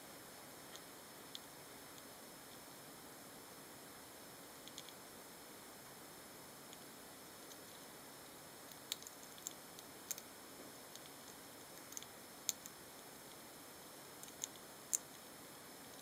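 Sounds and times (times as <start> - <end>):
faint steady hiss: 0.0 - 16.0
hamsters cracking seeds: 8.6 - 10.3, 10.9 - 13.4, 14.1 - 16.0.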